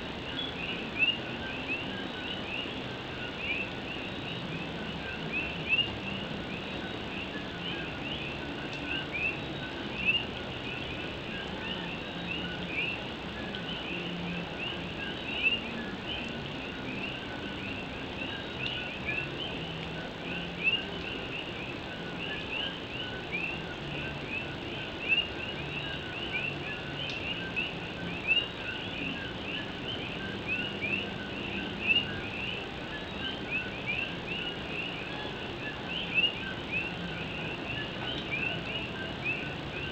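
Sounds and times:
chorus of frogs calling: 0:00.0 - 0:39.9
steady hiss of rain: 0:00.0 - 0:39.9.

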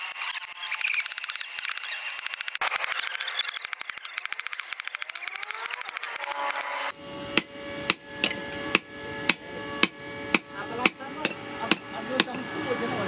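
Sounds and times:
hammer striking metal on anvil: 0:07.3 - 0:12.4.

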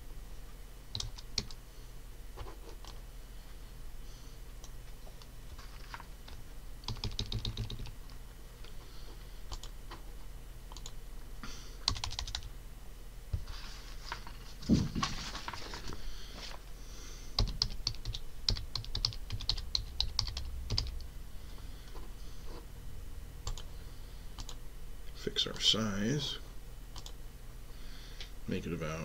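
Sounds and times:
computer keyboard typing: 0:00.9 - 0:01.6, 0:06.8 - 0:08.0, 0:09.5 - 0:09.7, 0:10.7 - 0:11.0, 0:11.8 - 0:12.5, 0:17.4 - 0:21.0, 0:23.4 - 0:23.7, 0:24.4 - 0:24.6, 0:27.0 - 0:27.2.

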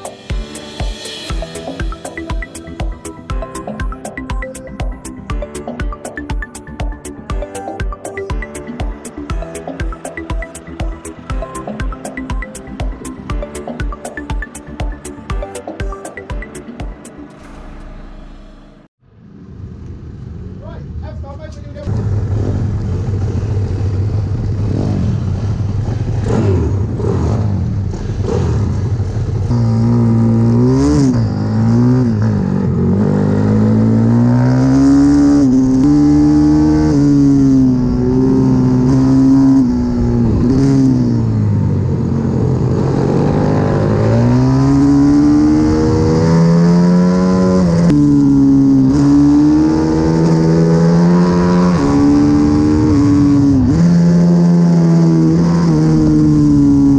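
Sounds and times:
motorbike engine accelerating hard: 0:21.9 - 0:56.9.

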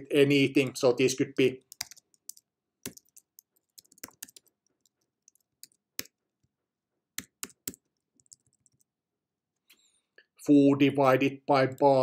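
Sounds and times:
computer keyboard key clicks: 0:01.7 - 0:04.4.

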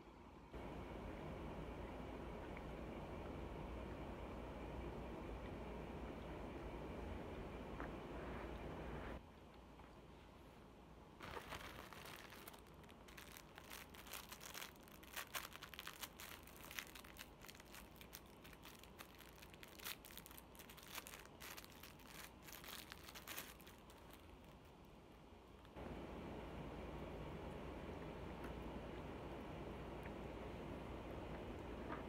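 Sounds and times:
plastic packaging crinkling and tearing: 0:11.2 - 0:24.8.

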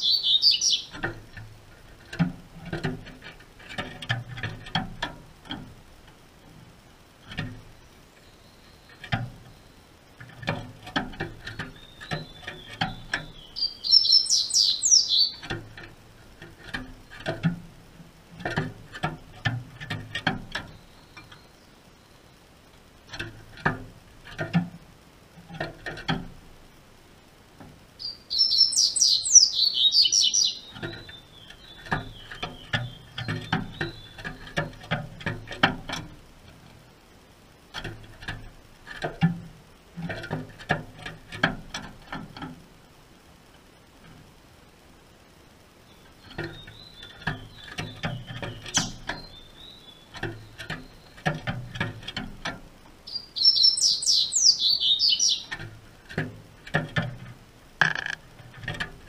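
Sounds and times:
bird song with high descending notes: 0:00.0 - 0:00.9, 0:13.3 - 0:15.4, 0:28.0 - 0:32.3, 0:53.1 - 0:55.5
bird hopping on perches and cage: 0:00.0 - 0:21.5, 0:23.1 - 0:24.8, 0:25.4 - 0:26.6, 0:27.6 - 0:36.9, 0:37.7 - 0:42.6, 0:46.0 - 0:59.0.

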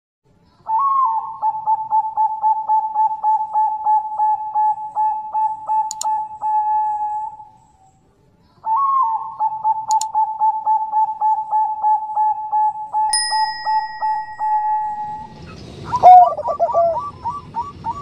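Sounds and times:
mouse click: 0:05.9 - 0:06.1, 0:09.9 - 0:10.1
bell ding: 0:13.1 - 0:15.5
pulsing electronic tone: 0:13.1 - 0:15.6.

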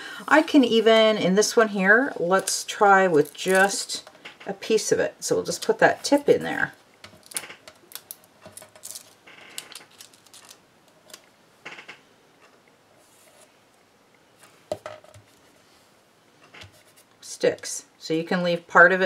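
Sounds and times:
paper rustle: 0:07.2 - 0:10.6.

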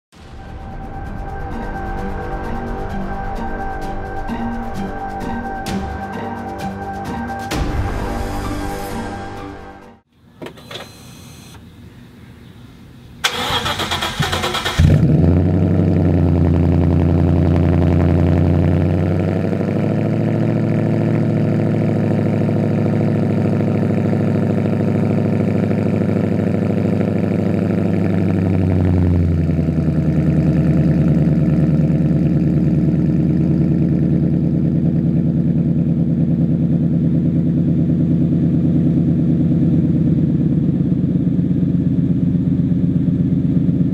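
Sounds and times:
car engine idling: 0:11.7 - 0:43.9
starter motor cranking: 0:13.2 - 0:15.1.

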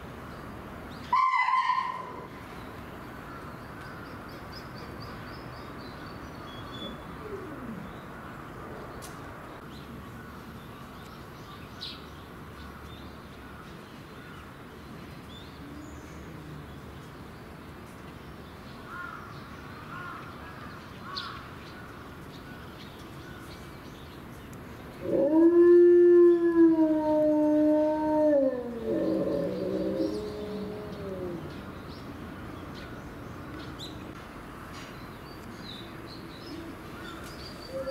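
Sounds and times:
wolf howling: 0:25.0 - 0:31.6.

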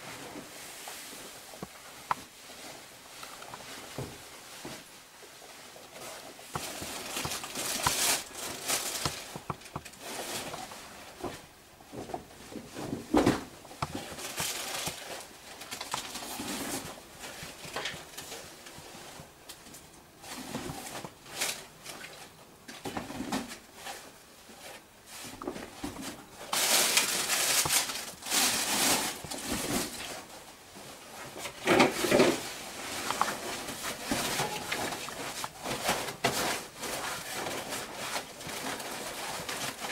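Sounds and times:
plastic packets crinkling: 0:06.0 - 0:11.0, 0:13.5 - 0:18.8, 0:25.9 - 0:30.3
gear rustling and knocking: 0:06.0 - 0:21.6.

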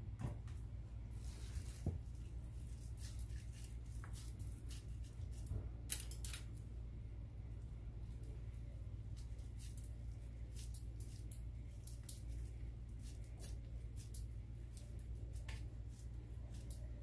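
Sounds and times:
hands squeezing meat: 0:01.2 - 0:05.6, 0:09.0 - 0:17.0.

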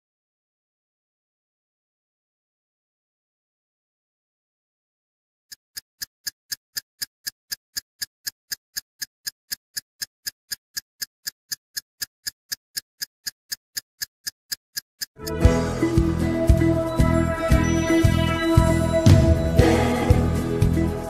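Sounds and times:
clock ticking: 0:05.5 - 0:16.7
loud music: 0:15.2 - 0:21.0.

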